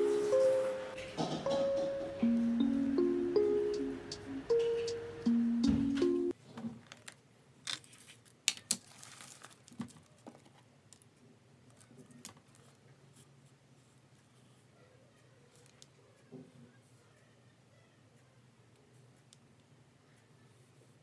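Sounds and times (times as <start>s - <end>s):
paper rustling: 6.4s - 10.7s.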